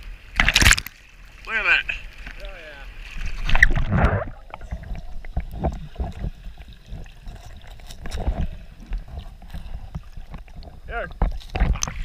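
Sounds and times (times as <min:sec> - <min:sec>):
water sloshing and gurgling: 0:00.0 - 0:12.0.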